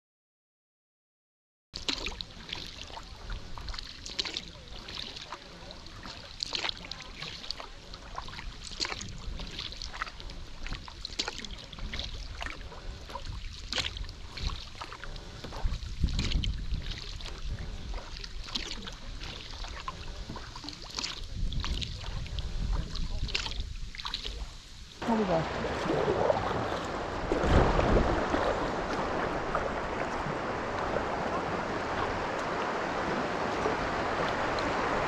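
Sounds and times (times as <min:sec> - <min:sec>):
paddle splashing and dripping: 0:01.8 - 0:35.0
low rumble: 0:25.0 - 0:35.0.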